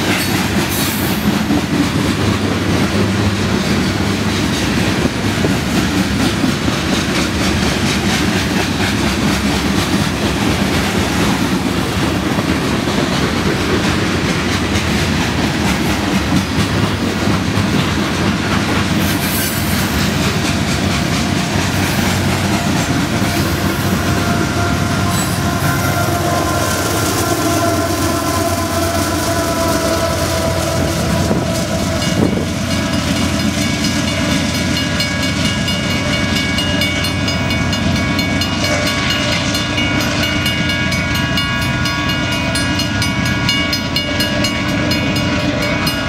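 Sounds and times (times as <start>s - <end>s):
freight cars clacking over rails: 0.0s - 28.2s
diesel locomotives under load: 0.0s - 46.0s.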